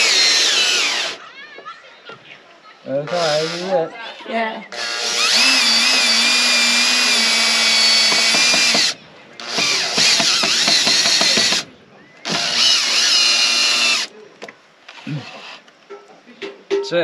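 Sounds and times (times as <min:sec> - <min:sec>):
cordless driver motor whining: 0:00.0 - 0:01.2, 0:04.7 - 0:11.6, 0:12.2 - 0:14.1.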